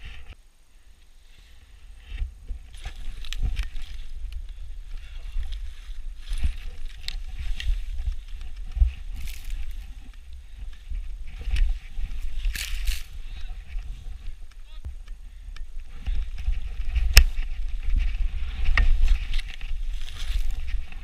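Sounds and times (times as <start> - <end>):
wind rumble on microphone: 1.3 - 21.0
skis swishing through snow: 2.7 - 14.4, 16.0 - 21.0.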